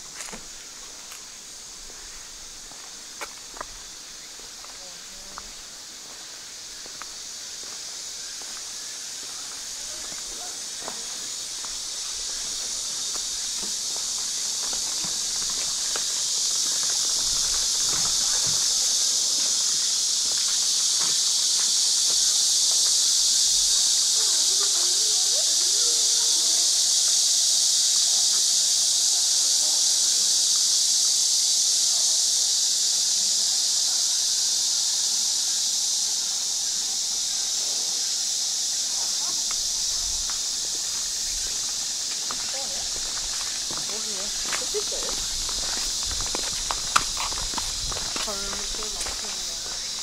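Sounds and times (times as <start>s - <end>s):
faint footsteps: 0.0s - 19.6s, 39.0s - 50.0s
high-pitched insect chorus: 0.0s - 50.0s
distant voices: 36.2s - 50.0s.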